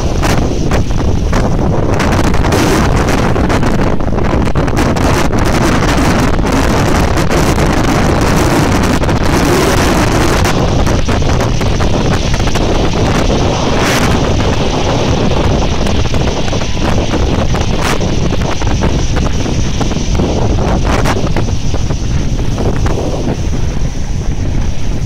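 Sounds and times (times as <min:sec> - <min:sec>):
surf breaking on shingle beach: 0:00.0 - 0:25.0
wind buffeting microphone: 0:00.0 - 0:25.0.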